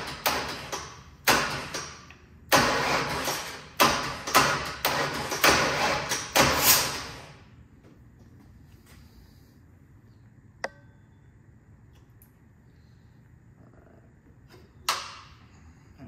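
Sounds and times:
starter motor cranking bursts: 0:02.5 - 0:07.3.

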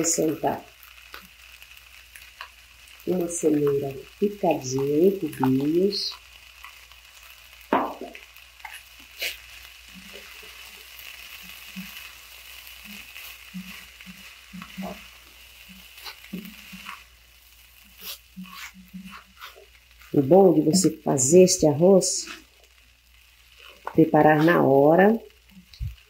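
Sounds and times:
vegetables sizzling in a pan: 0:00.0 - 0:26.0
spatula stirring and scraping: 0:05.2 - 0:26.0.

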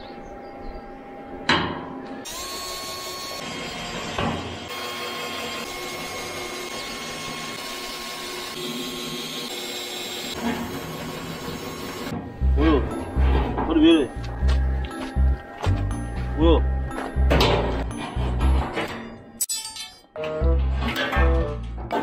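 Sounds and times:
cordless drill whining: 0:02.2 - 0:12.1.

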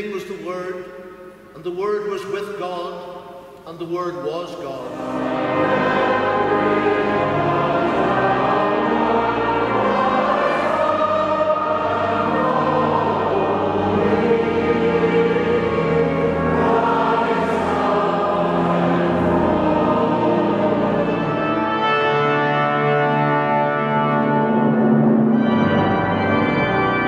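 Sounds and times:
choir and congregation singing hymn: 0:00.0 - 0:27.0
held instrumental chords: 0:04.9 - 0:27.0.

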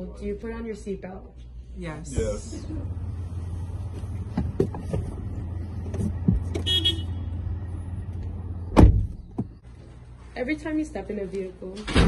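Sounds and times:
low car hum: 0:00.0 - 0:10.4
knocks and rustles: 0:03.9 - 0:06.6
car door shutting: 0:08.7 - 0:09.6.

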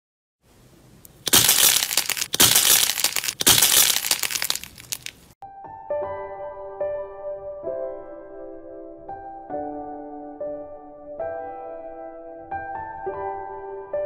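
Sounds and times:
crunchy slime crackling: 0:01.1 - 0:05.3
soft piano music: 0:05.4 - 0:14.0.

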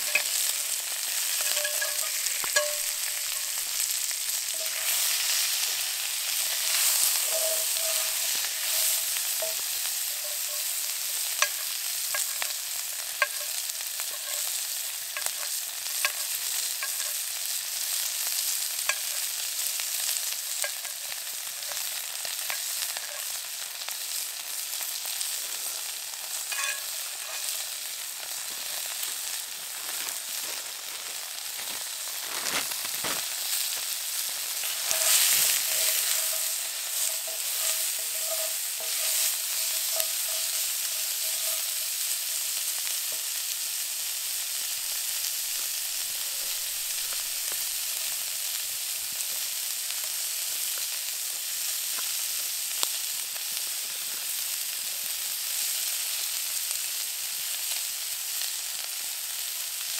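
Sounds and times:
thin steady whine: 0:00.0 - 0:04.9
food sizzling in a pan: 0:00.0 - 0:59.9.

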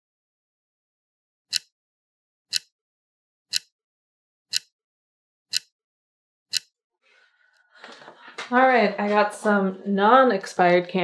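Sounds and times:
clock ticking: 0:01.5 - 0:01.7, 0:02.5 - 0:02.7, 0:03.5 - 0:03.7, 0:04.5 - 0:04.7, 0:05.5 - 0:05.7, 0:06.5 - 0:06.7.

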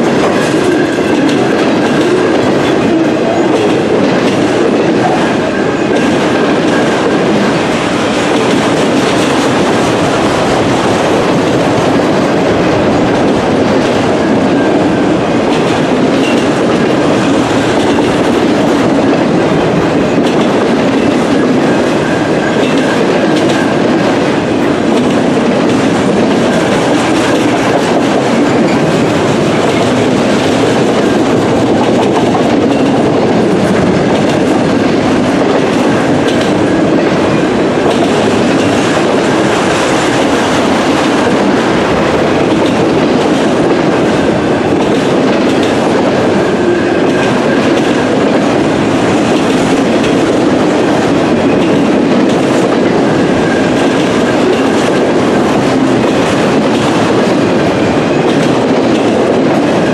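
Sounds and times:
train wheels rumbling on rails: 0:00.0 - 0:59.9.

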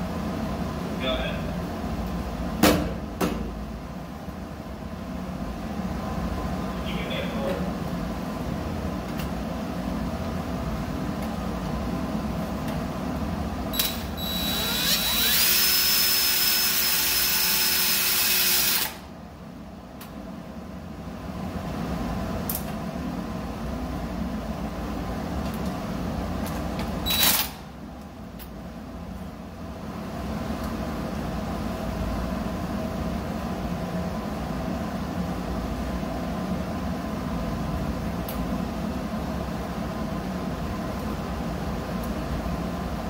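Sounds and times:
low mechanical hum: 0:00.0 - 0:43.0.

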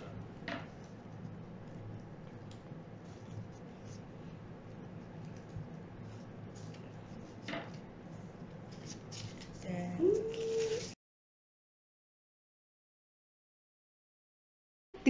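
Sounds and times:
paper rustling and scraping: 0:05.3 - 0:11.0.

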